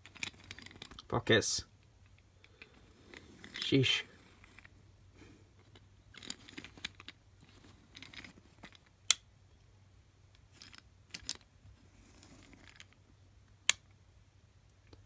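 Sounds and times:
toys scraping on carpet: 2.8s - 4.7s.

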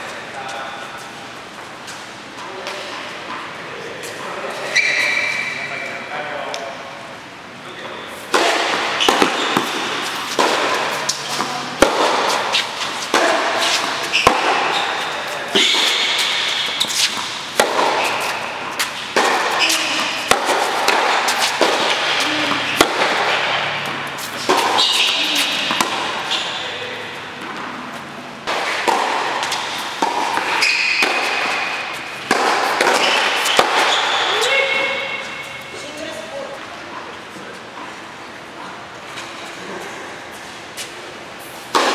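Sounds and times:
tennis shoes squeaking: 4.0s - 6.0s, 7.8s - 38.4s.

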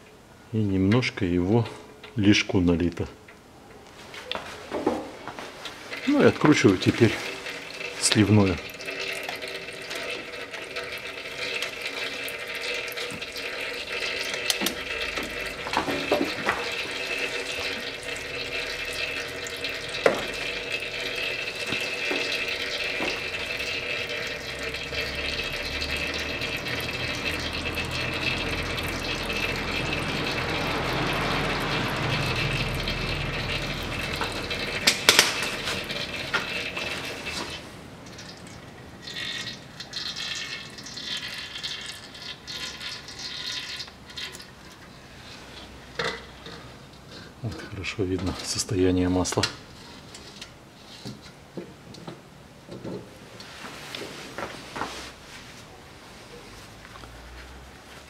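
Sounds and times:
oil pouring into metal basin: 5.7s - 51.4s.

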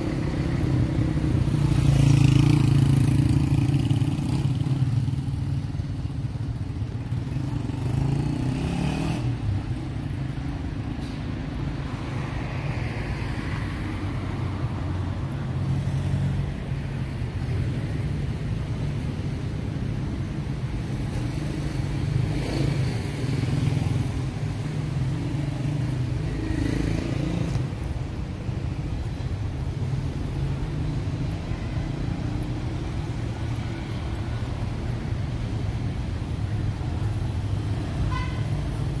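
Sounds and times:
low rumble of road traffic: 0.0s - 39.0s
vehicles driving past: 0.0s - 39.0s.

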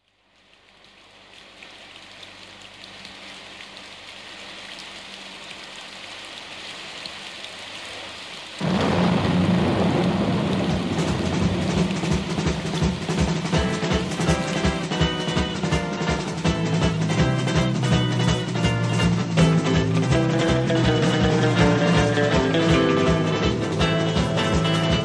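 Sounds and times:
rain: 0.0s - 25.0s
thunder rumble: 8.6s - 25.0s.

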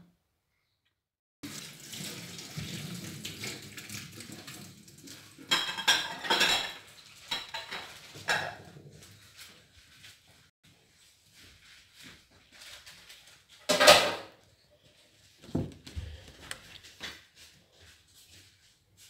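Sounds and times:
dishes and cutlery clattering: 5.2s - 9.1s, 13.6s - 14.4s.

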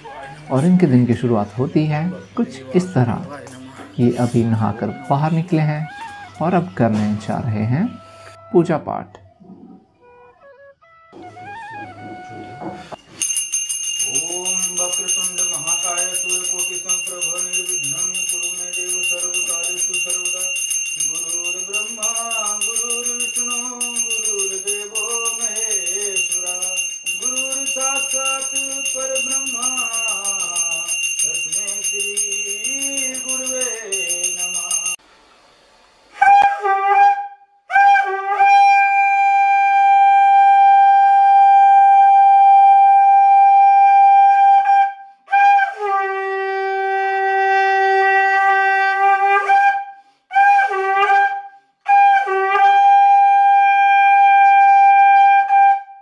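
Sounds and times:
hand bell ringing: 13.1s - 35.0s
man chanting: 14.1s - 35.0s
conch shell blown: 36.2s - 56.0s.

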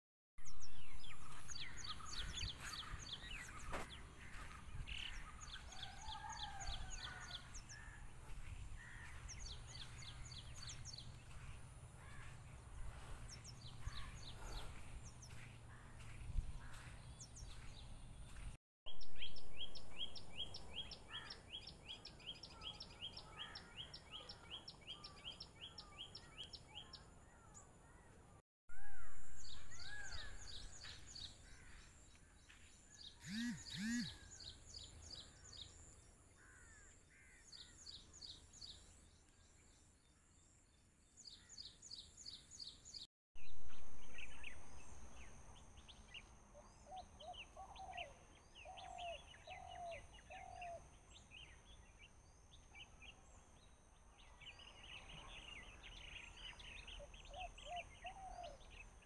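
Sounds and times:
small birds calling: 1.0s - 18.5s, 29.7s - 39.4s, 45.8s - 52.1s.

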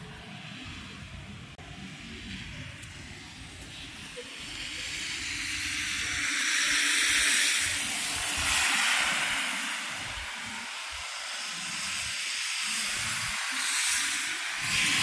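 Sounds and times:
tyres hissing on snow: 1.9s - 15.0s.

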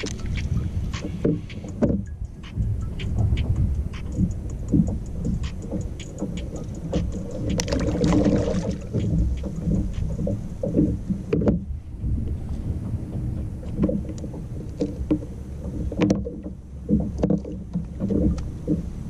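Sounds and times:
handling ticks and clicks: 0.0s - 11.6s, 13.6s - 18.9s
wind buffeting microphone: 0.0s - 19.0s.

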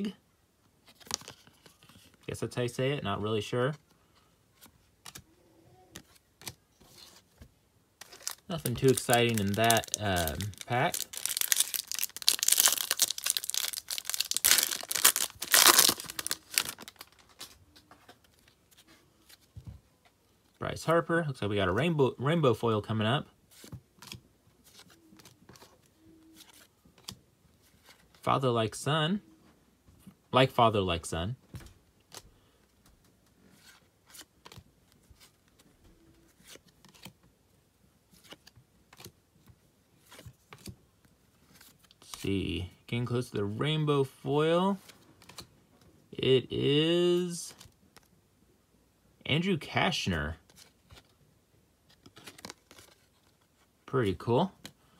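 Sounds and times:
cards being flipped by hand: 0.8s - 2.2s, 4.6s - 5.3s, 5.9s - 19.5s, 32.1s - 35.7s, 36.3s - 37.2s, 38.1s - 39.1s, 40.0s - 40.8s, 44.8s - 45.5s, 51.8s - 53.7s
card pack wrapper tearing: 8.0s - 17.4s.

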